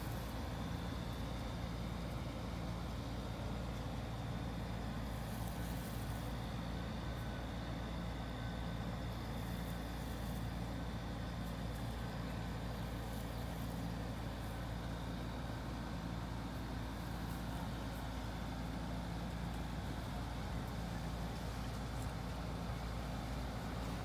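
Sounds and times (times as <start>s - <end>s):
low mechanical rumble: 0.0s - 24.0s.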